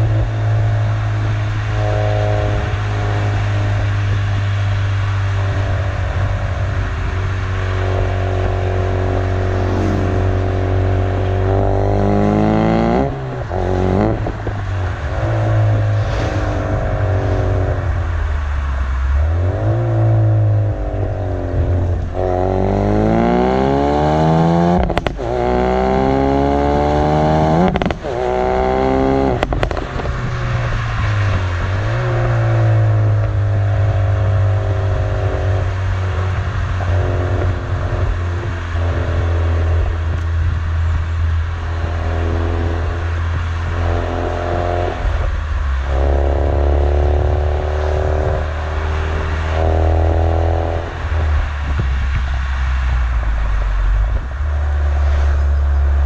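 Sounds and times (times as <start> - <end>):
car exhaust accelerating: 0.0 - 56.0
exhaust crack at gear changes: 24.6 - 56.0.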